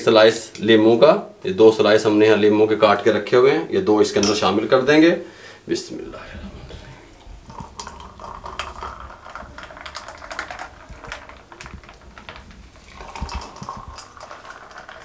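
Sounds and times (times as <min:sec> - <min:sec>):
juice pouring into glass: 0:06.2 - 0:15.0
ice clicking against glass: 0:07.5 - 0:15.0.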